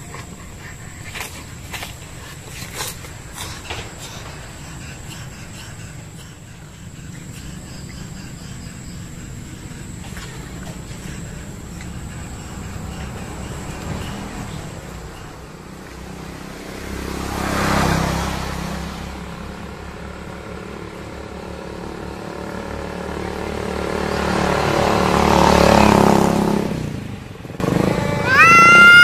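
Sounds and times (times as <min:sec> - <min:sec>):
cats growling: 0:00.0 - 0:19.4, 0:27.6 - 0:29.0
motorbikes passing: 0:00.0 - 0:29.0
cat yowling: 0:27.9 - 0:29.0.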